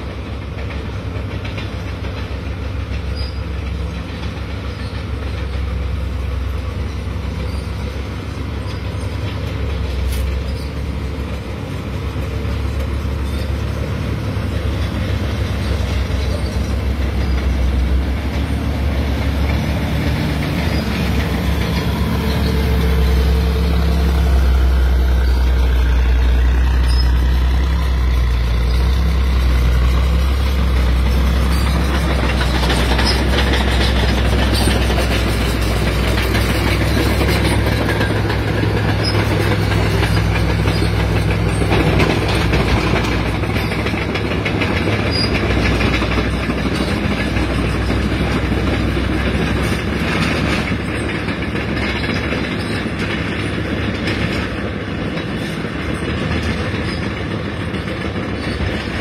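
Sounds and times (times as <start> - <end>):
heavy diesel engines rumbling: 0.0 - 59.0.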